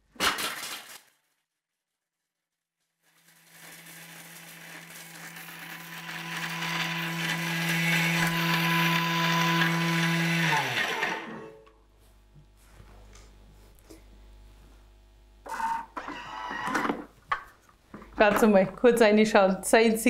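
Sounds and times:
food processor motor humming: 3.1 - 11.7, 15.5 - 17.0
grinding noise: 3.7 - 11.7.

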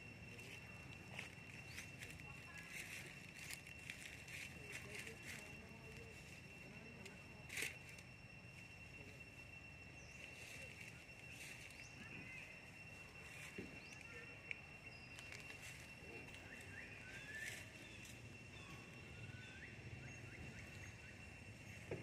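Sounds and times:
high-pitched drone: 0.0 - 22.0.

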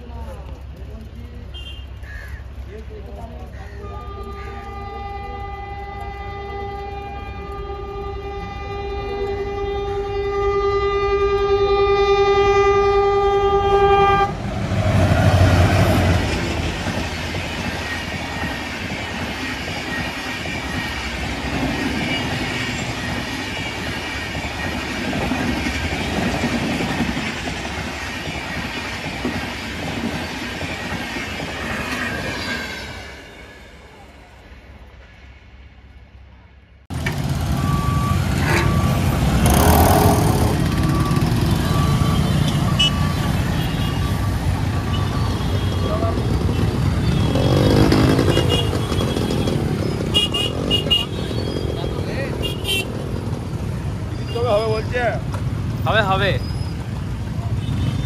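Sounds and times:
locomotive horn: 3.8 - 14.5.

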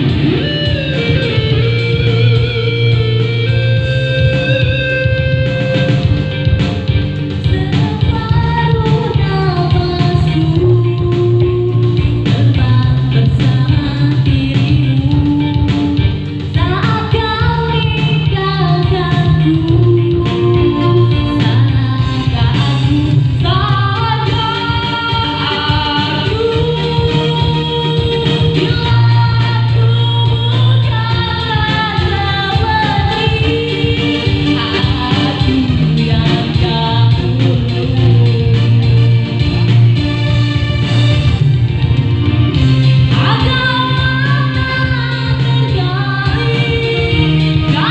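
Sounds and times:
woman singing into a microphone: 0.0 - 40.4, 42.8 - 47.9
keyboard accompaniment with beat: 0.0 - 47.9.

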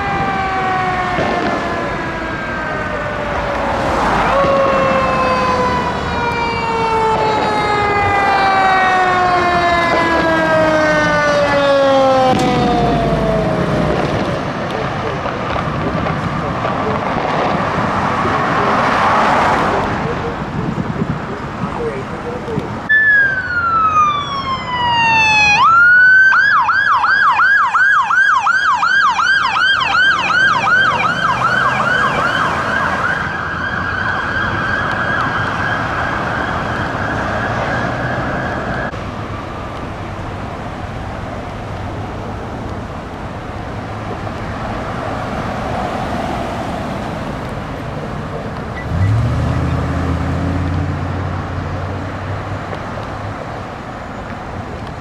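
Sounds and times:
electronic siren wailing and yelping: 0.0 - 14.0, 22.9 - 38.9
traffic noise: 0.0 - 55.0.

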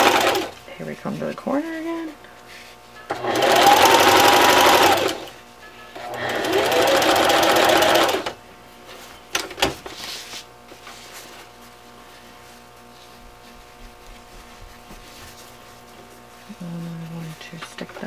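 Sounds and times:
electric sewing machine stitching: 0.0 - 0.6, 3.1 - 5.4, 6.0 - 8.4.

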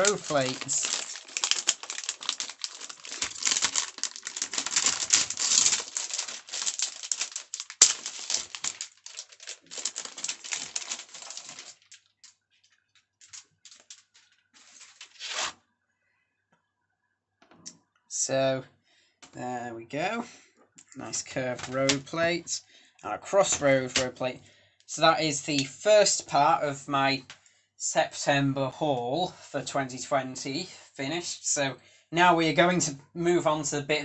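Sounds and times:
plastic bag crinkling: 0.0 - 15.5.

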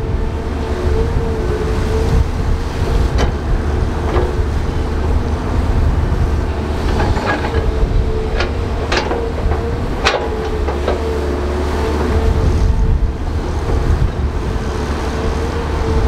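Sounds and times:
bulldozer diesel engine rumbling: 0.0 - 16.0
metallic clanks: 6.8 - 11.2.

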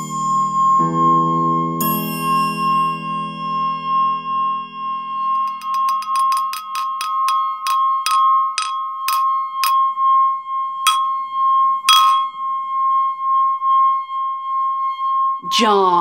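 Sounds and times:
glass singing tone: 0.0 - 16.0
sharp ringing taps on glass: 5.3 - 9.8, 10.9 - 11.2, 11.9 - 12.4.

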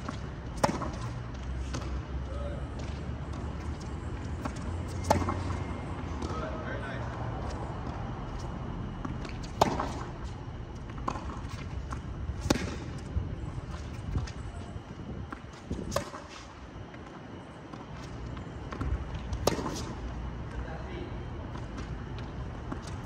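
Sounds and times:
ball bouncing on hard court: 0.0 - 1.1, 4.4 - 6.4, 9.0 - 10.1, 10.9 - 13.0, 18.8 - 19.9
racket hitting tennis ball: 0.0 - 1.9, 4.4 - 6.4, 7.4 - 14.4, 15.3 - 16.6, 18.8 - 20.0.

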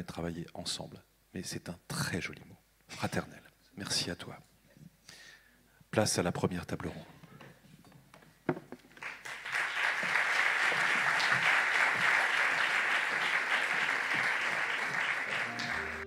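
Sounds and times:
audience applauding: 9.0 - 16.0.

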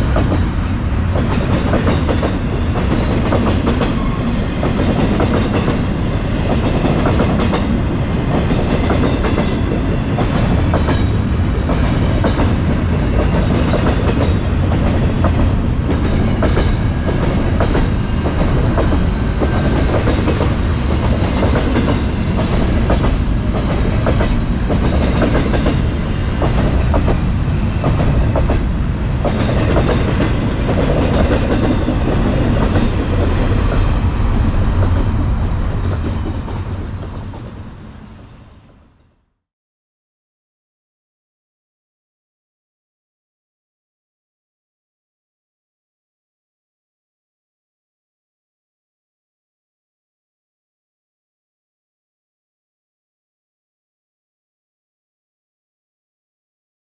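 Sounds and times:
train wheels rolling on rail: 0.0 - 38.8
wheels clacking over rail joints: 17.4 - 28.6.

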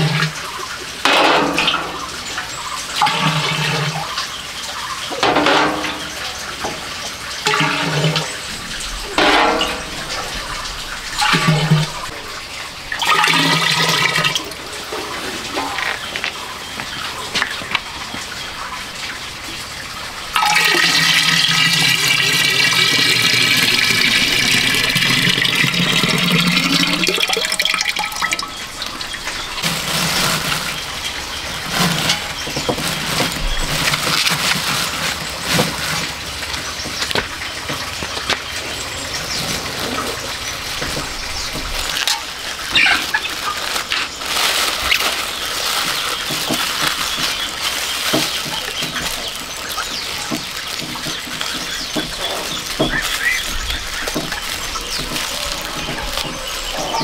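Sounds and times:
liquid pouring into ceramic jar: 20.4 - 31.3
plastic film crinkling: 20.4 - 37.4, 38.1 - 57.0.

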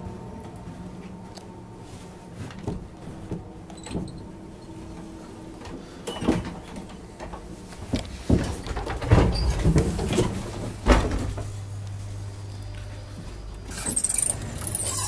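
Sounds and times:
powered door mechanism hum: 10.8 - 15.0.

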